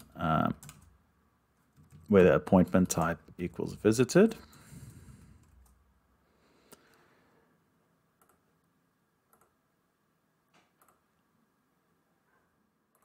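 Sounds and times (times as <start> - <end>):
mouse and keyboard clicks: 9.3 - 9.6.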